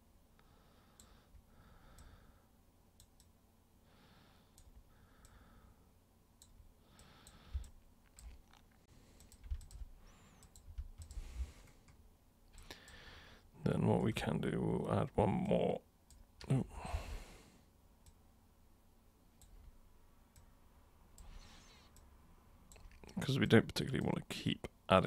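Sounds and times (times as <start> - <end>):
computer mouse clicks: 3.0 - 3.4, 6.4 - 13.0, 22.7 - 23.2
keyboard key presses: 9.2 - 12.0.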